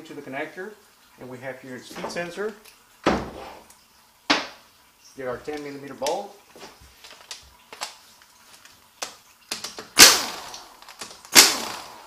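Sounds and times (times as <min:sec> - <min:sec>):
impact tool bursts: 0:09.6 - 0:12.0.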